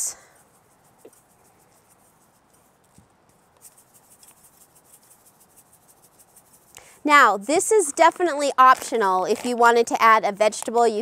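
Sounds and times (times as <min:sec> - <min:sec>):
shakers rattling: 0:03.6 - 0:10.0.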